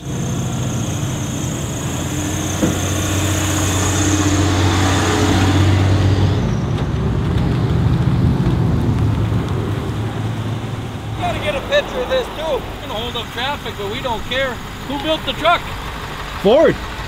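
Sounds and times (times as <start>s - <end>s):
truck engine under load: 0.0s - 17.0s
tyre and road noise: 0.0s - 17.0s
brief knock: 2.6s - 2.8s.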